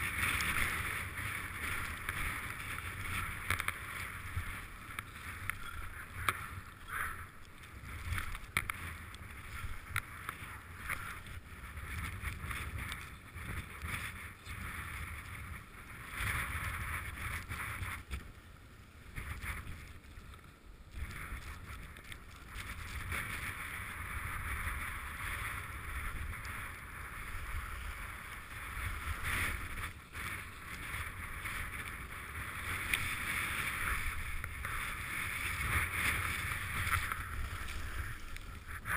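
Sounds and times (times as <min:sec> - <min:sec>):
wind on microphone: 0:00.0 - 0:18.3, 0:19.0 - 0:38.9
skis scraping over snow: 0:00.0 - 0:38.9.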